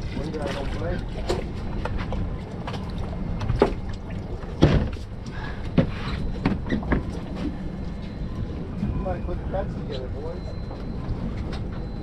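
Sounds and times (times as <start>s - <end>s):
low rumble of wind: 0.0s - 12.0s
water against boat: 0.0s - 12.0s
sharp knocks and thumps: 4.6s - 5.0s.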